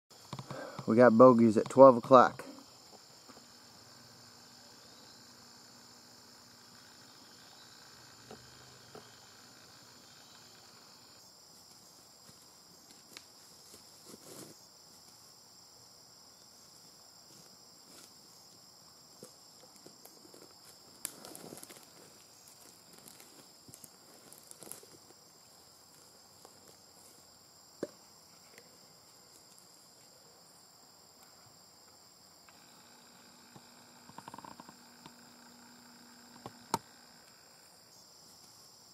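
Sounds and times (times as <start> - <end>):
insects droning: 0.1 - 38.9
rustling in grass: 11.5 - 15.4, 16.5 - 27.4.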